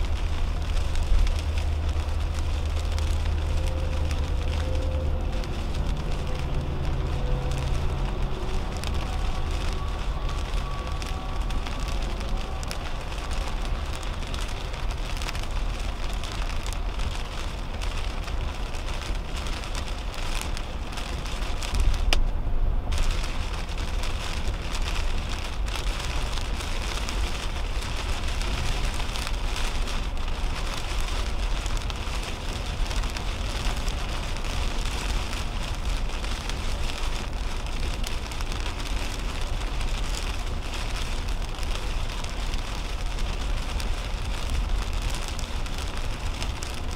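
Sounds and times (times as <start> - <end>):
heavy rain on car windshield: 0.0 - 46.9
tyres rumbling on wet road: 0.0 - 46.9.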